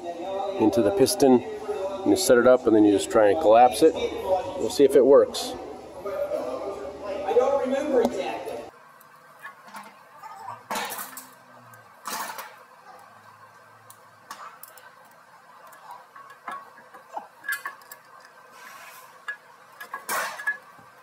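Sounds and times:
metal tools clinking: 0:15.7 - 0:18.3.

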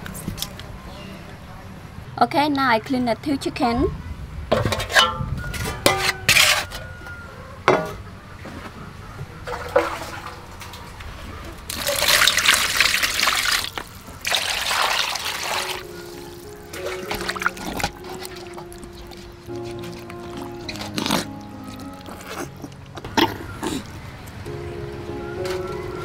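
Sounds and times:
metal dishes clinking: 0:04.6 - 0:06.8
water pouring into metal basin: 0:11.7 - 0:19.2.

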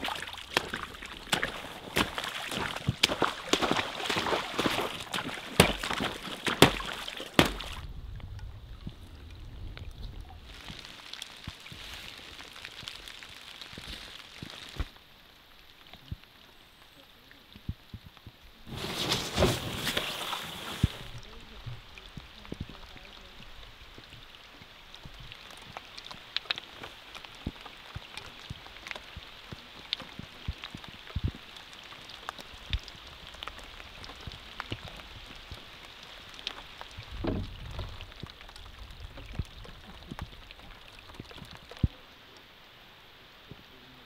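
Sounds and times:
rain pattering on water: 0:00.0 - 0:44.0
sharp knock: 0:06.6 - 0:07.7
low rumble: 0:07.8 - 0:10.6.

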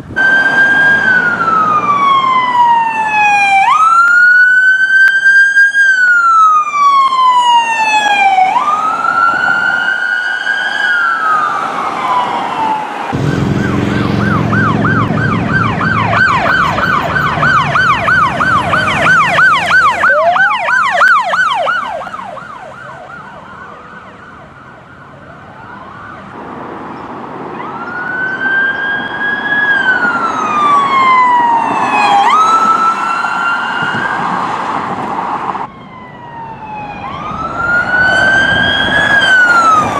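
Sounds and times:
siren wail: 0:00.0 - 0:26.5, 0:27.5 - 0:39.9
siren yelp: 0:00.1 - 0:26.4, 0:27.5 - 0:34.6, 0:35.6 - 0:39.9
engine rumble: 0:13.1 - 0:29.0.

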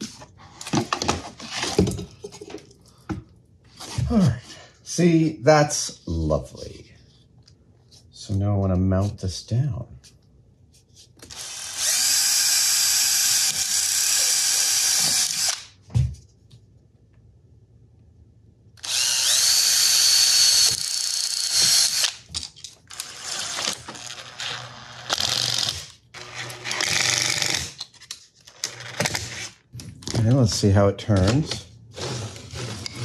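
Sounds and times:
power drill driving screws: 0:11.2 - 0:15.7, 0:18.8 - 0:22.3, 0:22.9 - 0:27.9, 0:28.5 - 0:29.5.

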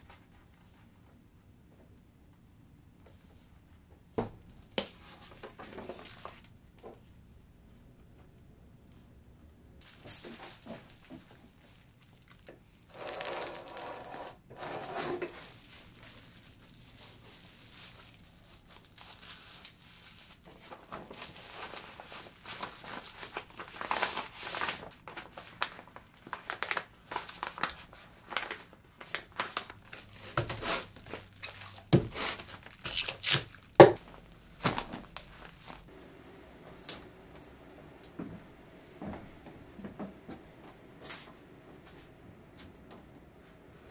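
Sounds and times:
plastic crinkling and rustling: 0:04.9 - 0:06.5, 0:09.8 - 0:35.9
bubble wrap crackling and snapping: 0:09.8 - 0:14.4, 0:15.3 - 0:35.9.

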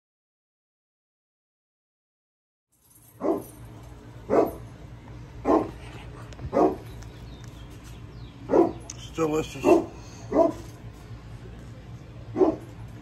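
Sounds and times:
low steady hum: 0:02.8 - 0:13.0
dog barking: 0:03.2 - 0:03.5, 0:04.3 - 0:04.6, 0:05.4 - 0:05.8, 0:06.5 - 0:06.9, 0:08.5 - 0:08.9, 0:09.6 - 0:10.7, 0:12.3 - 0:12.7.

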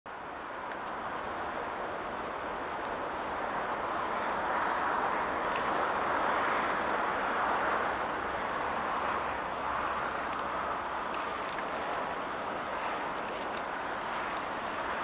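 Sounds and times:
distant road traffic: 0:00.1 - 0:15.0.

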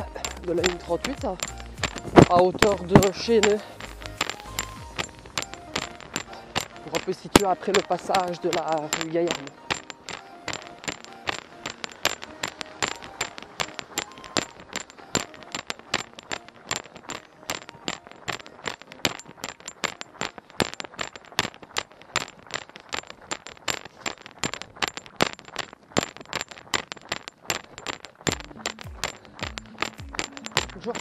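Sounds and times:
footsteps crunching on gritty path: 0:00.0 - 0:15.1.

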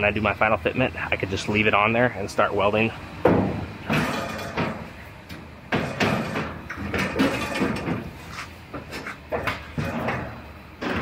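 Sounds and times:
sheet-metal clunks and knocks: 0:03.2 - 0:04.9, 0:05.7 - 0:08.1, 0:09.3 - 0:11.0.

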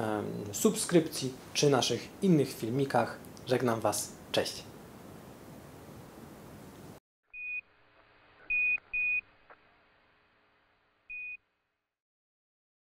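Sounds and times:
short high electronic beeps: 0:08.4 - 0:09.2.

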